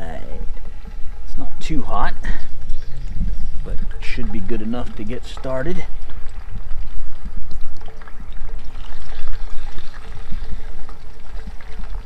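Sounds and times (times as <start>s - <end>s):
fish sizzling in hot oil: 4.9s - 12.0s.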